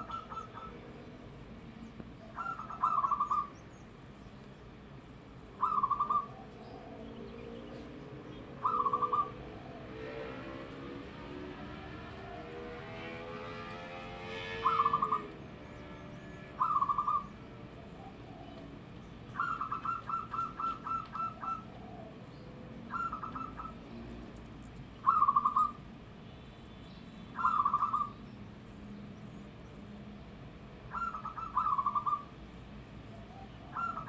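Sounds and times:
dove cooing: 0.0s - 0.9s, 2.2s - 3.6s, 5.6s - 10.0s, 14.6s - 15.4s, 16.6s - 24.4s, 25.0s - 25.8s, 27.4s - 28.2s, 30.9s - 32.3s, 33.2s - 34.0s.

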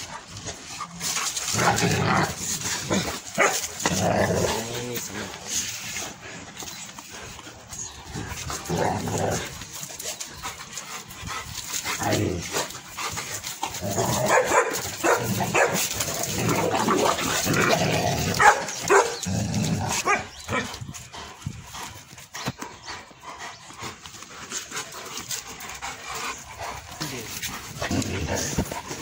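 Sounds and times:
young dogs barking: 3.1s - 3.9s, 13.9s - 20.7s.

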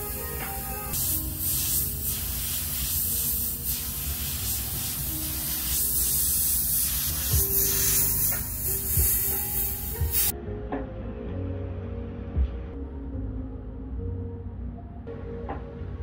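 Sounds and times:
airbrush hissing: 0.0s - 10.3s.

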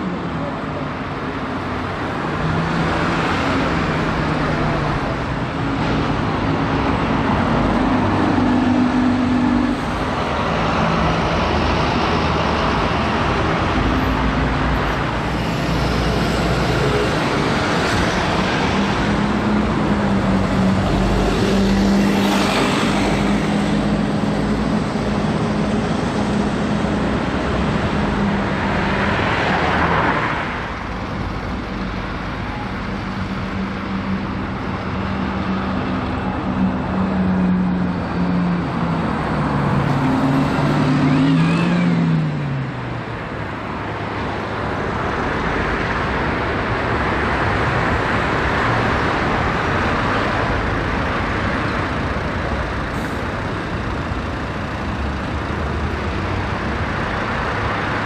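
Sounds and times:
street traffic: 0.0s - 58.0s
diesel bus driving past: 47.7s - 58.0s.

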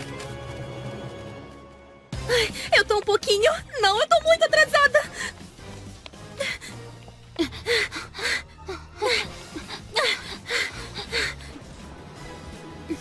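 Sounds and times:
girl panting: 6.3s - 11.7s.

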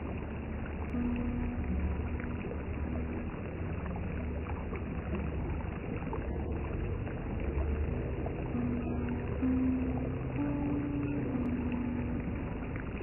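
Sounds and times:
low rumbling background noise: 0.0s - 13.0s.

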